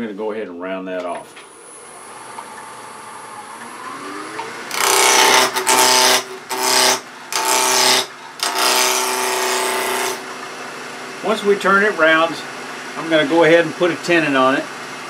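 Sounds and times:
wood lathe running: 1.8s - 10.3s
gouge cutting wood: 4.7s - 10.2s.

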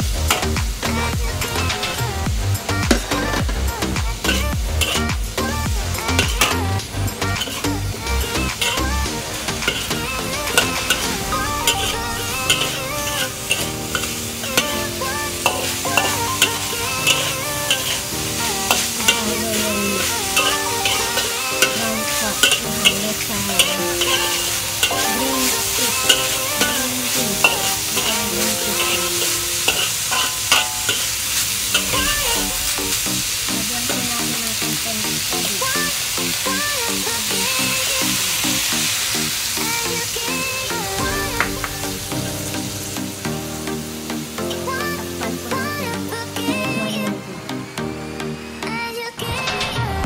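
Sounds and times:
food sizzling in wok: 0.0s - 49.4s
background music: 0.0s - 50.0s
metal spatula scraping pan: 4.2s - 33.5s.

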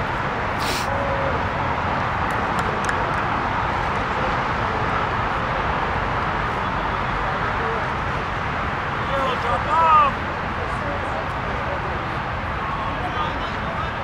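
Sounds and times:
distant road traffic roar: 0.0s - 14.0s
short sharp sound: 0.6s - 0.9s.

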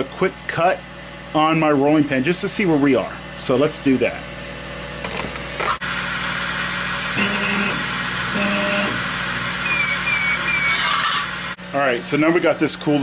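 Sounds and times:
motor whine: 4.3s - 13.0s
laser engraver hiss: 6.9s - 11.5s.

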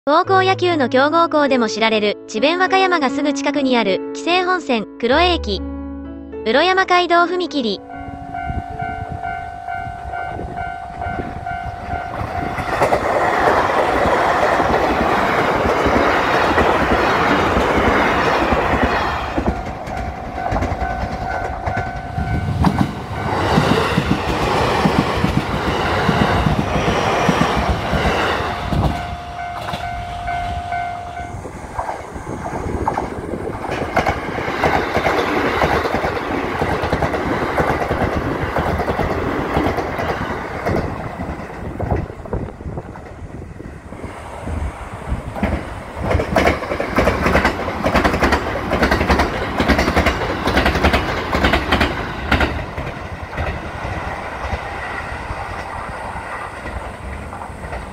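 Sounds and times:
train rumble and wheel clatter: 7.6s - 57.9s
level-crossing warning bell: 7.8s - 13.1s, 19.2s - 24.2s, 28.4s - 31.7s.

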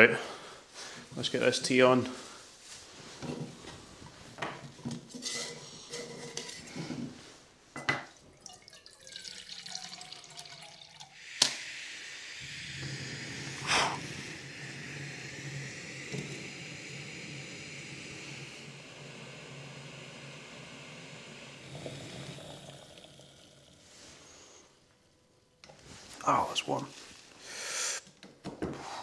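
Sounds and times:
gas stove hissing: 3.4s - 7.6s, 11.0s - 25.0s, 25.6s - 28.2s
water poured into a pot: 8.1s - 24.6s.

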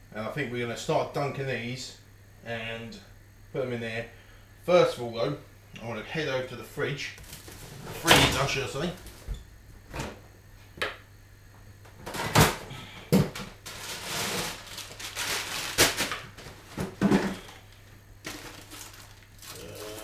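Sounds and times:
frozen food bags rustling: 7.2s - 9.2s, 13.6s - 20.0s
knocks and clunks from freezer drawers: 7.6s - 10.2s, 15.8s - 17.5s.

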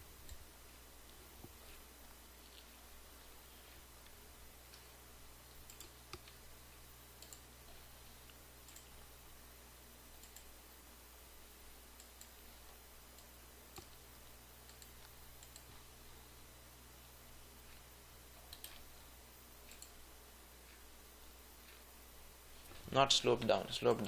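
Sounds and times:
low steady hum: 0.0s - 24.0s
computer mouse clicks: 4.0s - 6.4s, 7.1s - 9.0s, 10.1s - 10.5s, 11.9s - 14.0s, 14.6s - 15.9s, 17.6s - 19.0s, 19.6s - 20.0s.

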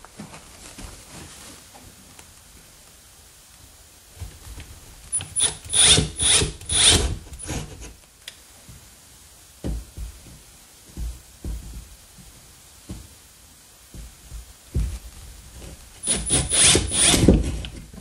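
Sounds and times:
cordless drill motor whirring: 5.2s - 7.6s, 16.1s - 17.3s.

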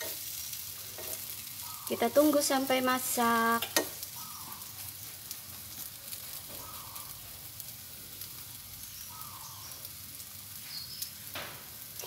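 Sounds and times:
bread sizzling in butter: 0.0s - 12.0s.

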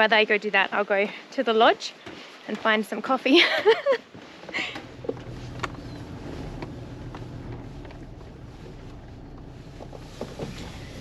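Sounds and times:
vehicle engine and road hum: 4.6s - 11.0s.

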